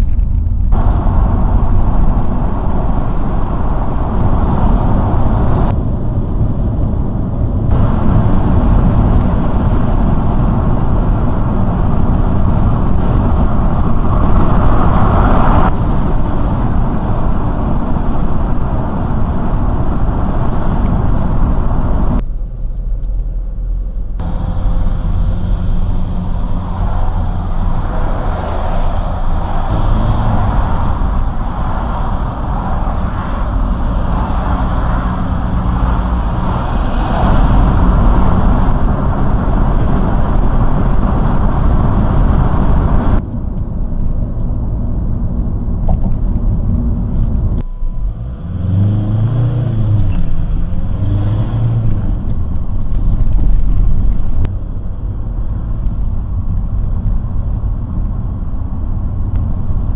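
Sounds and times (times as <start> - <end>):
wind hiss: 0.0 - 5.8, 7.7 - 22.2, 24.2 - 43.3
car engine drone: 0.0 - 59.9.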